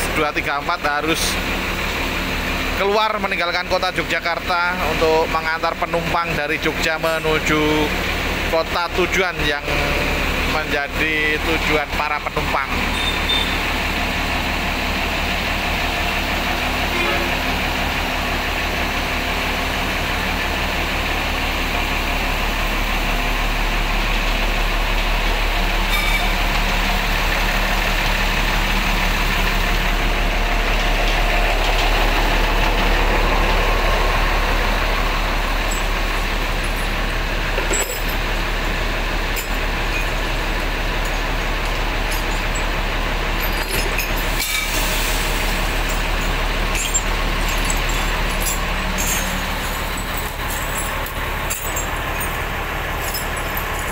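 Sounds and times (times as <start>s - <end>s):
diesel engine idling: 0.0s - 53.9s
light metallic clinks: 45.8s - 53.9s.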